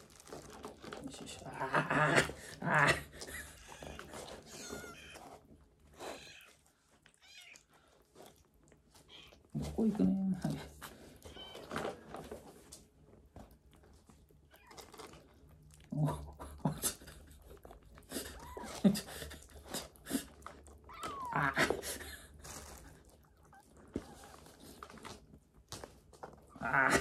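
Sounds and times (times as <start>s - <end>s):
kittens chewing wet food: 0.0s - 27.0s
kitten squeaky calls: 9.1s - 9.4s, 11.3s - 11.7s, 20.9s - 21.4s.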